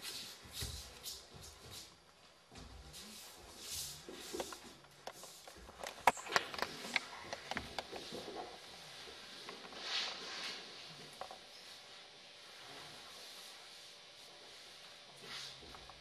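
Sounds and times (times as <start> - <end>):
brushing slide on floor: 2.9 - 5.6, 8.0 - 15.9.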